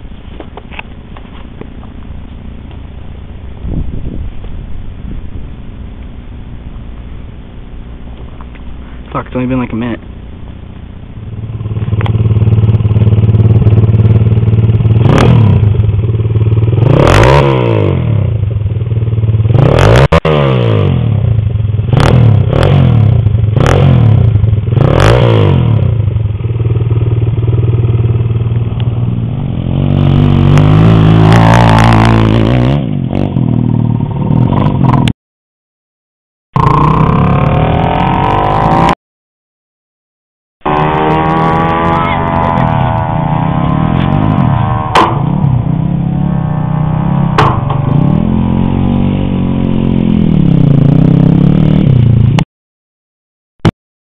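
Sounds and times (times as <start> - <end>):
mini bike engine revving: 16.5 - 18.2, 19.5 - 21.0, 21.9 - 26.0, 29.4 - 35.1, 36.6 - 39.0, 40.6 - 52.2.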